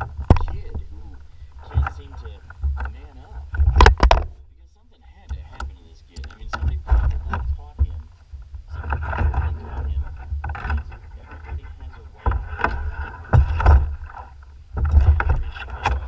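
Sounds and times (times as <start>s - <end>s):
wind rumble on microphone: 0.0s - 4.4s, 5.2s - 16.0s
water lapping against kayak hull: 6.3s - 16.0s.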